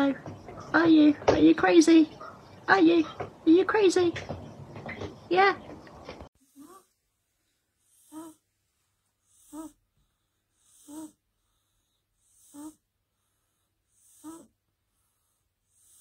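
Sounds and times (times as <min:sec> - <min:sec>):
cat snoring: 0:07.8 - 0:08.4, 0:09.2 - 0:16.0.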